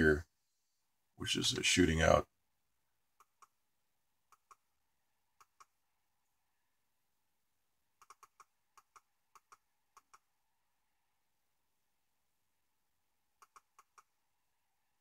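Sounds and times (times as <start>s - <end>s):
computer mouse button clicks: 8.0s - 10.2s.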